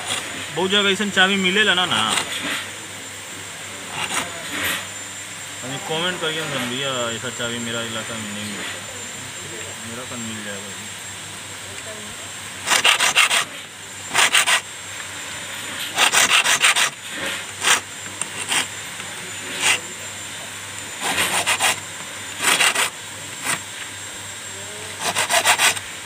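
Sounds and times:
hand file rasping on brass: 3.9s - 4.9s, 12.6s - 14.7s, 15.9s - 18.7s, 19.4s - 19.9s, 21.0s - 21.8s, 22.4s - 23.6s, 25.0s - 25.8s.

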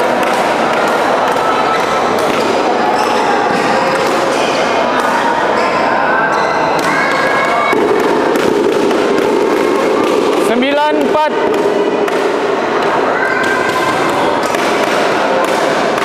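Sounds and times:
many overlapping voices and calls: 0.0s - 16.0s
racket striking shuttlecock: 0.2s - 4.4s, 7.7s - 16.0s.

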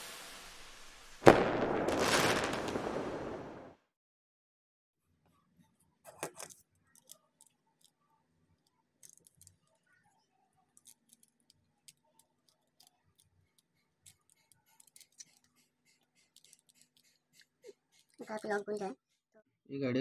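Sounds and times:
padlock number wheels clicking: 10.7s - 18.6s.

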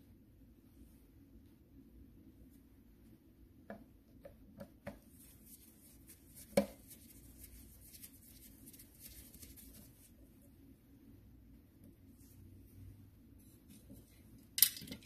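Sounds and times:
small metal clicks of parts: 14.6s - 15.0s.

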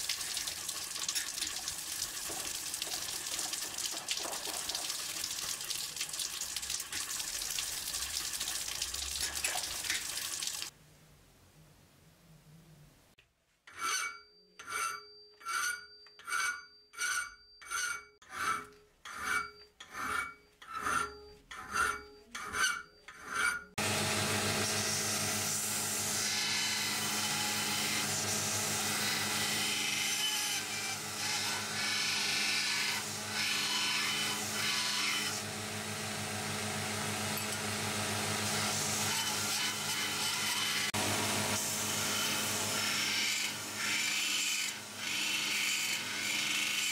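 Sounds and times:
file rasping on steel blade: 13.7s - 23.8s, 26.1s - 35.4s, 39.0s - 41.0s, 42.2s - 46.9s
belt grinder motor humming: 23.8s - 46.9s.

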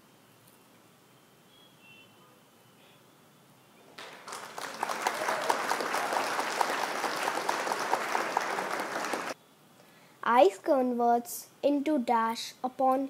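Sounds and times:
crowd applause: 4.0s - 9.4s.

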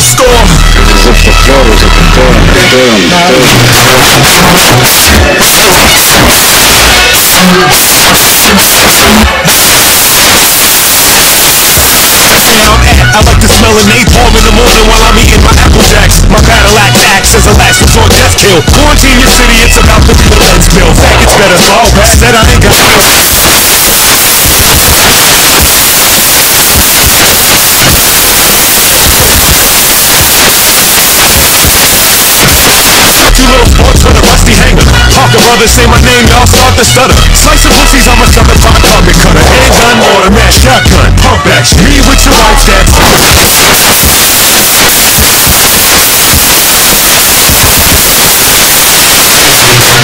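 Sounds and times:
static hiss: 3.8s - 13.0s, 22.8s - 33.4s, 42.9s - 50.0s
static-like rushing hiss: 22.9s - 33.3s.

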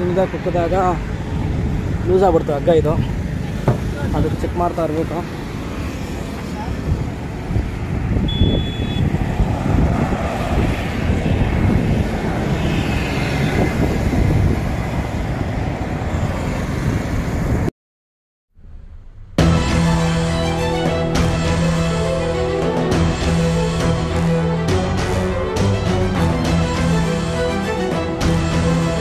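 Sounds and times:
road vehicle noise: 0.0s - 17.7s, 18.5s - 29.0s
wind on microphone: 6.7s - 17.7s
background music: 19.4s - 29.0s.

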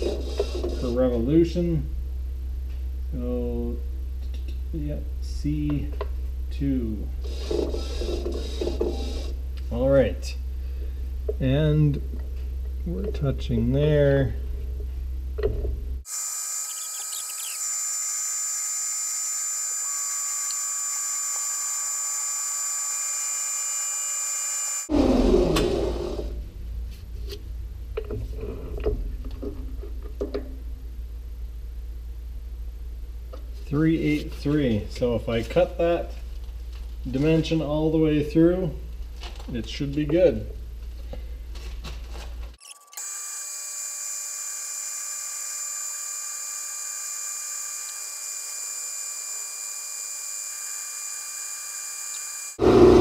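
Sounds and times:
steady low hum: 0.0s - 16.0s
lathe spindle spinning down: 16.2s - 26.3s, 43.0s - 53.0s.

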